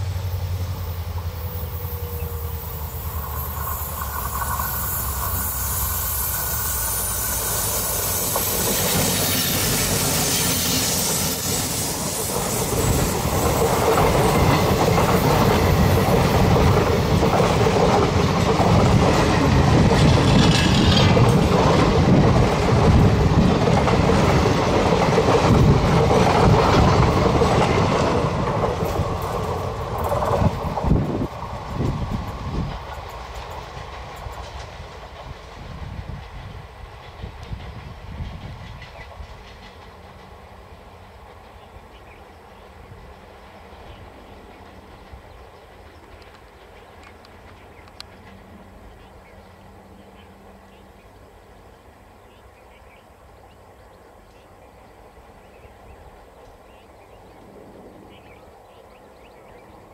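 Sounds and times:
locomotive engine humming: 0.0 - 42.0
train wheels clattering over rails: 3.0 - 42.4.

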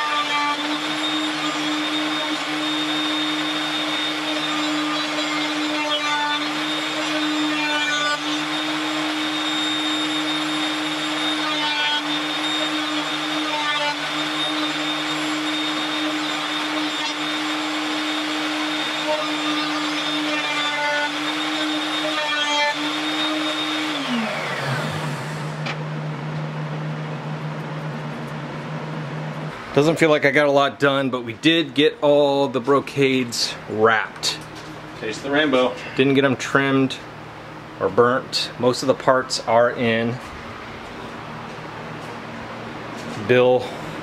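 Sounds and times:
power tool motor whining: 0.0 - 25.8
low machine hum: 0.0 - 44.0.

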